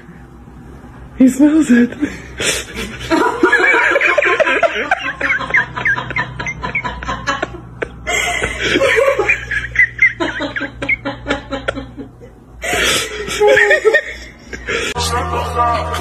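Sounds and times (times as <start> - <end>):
person giggling: 2.6 - 15.0.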